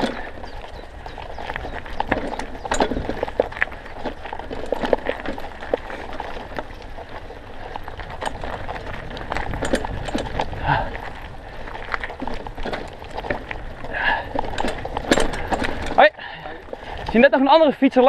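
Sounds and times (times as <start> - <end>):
mountain bike rattling over stones: 0.0 - 18.0
wind on microphone: 6.3 - 16.0.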